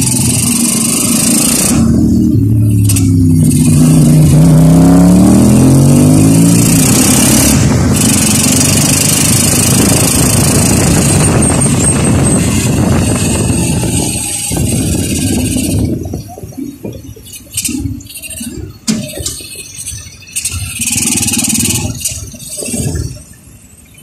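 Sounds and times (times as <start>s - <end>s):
motorcycle engine pulling away: 0.0s - 16.5s
wind and road noise: 0.0s - 24.0s.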